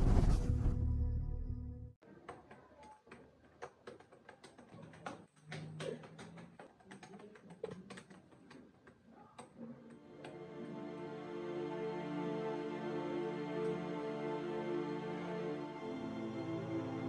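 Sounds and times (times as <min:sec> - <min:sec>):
music: 0:00.0 - 0:02.0, 0:09.9 - 0:17.0
laptop keyboard typing: 0:02.8 - 0:10.0.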